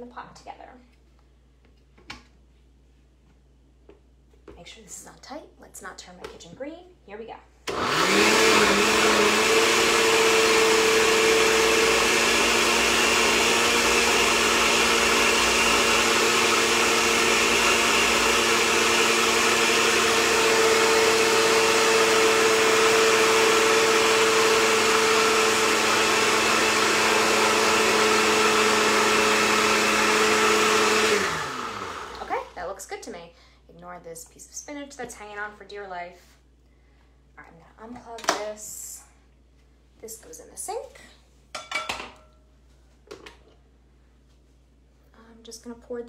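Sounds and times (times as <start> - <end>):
blender motor running: 7.7 - 32.6.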